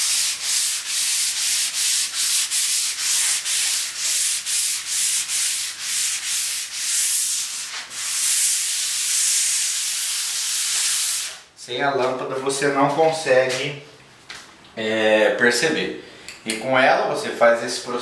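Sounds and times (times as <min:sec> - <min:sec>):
sandpaper rubbing on wall: 0:00.0 - 0:11.5.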